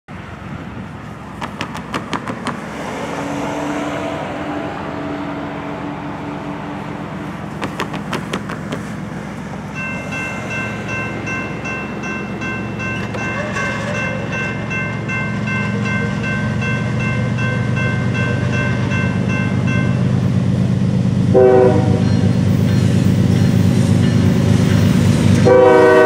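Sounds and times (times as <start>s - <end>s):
distant freight train rumble: 0.1s - 26.0s
crossing warning bell dinging: 9.6s - 26.0s
train horn: 13.2s - 14.2s, 21.3s - 22.3s, 25.4s - 26.0s.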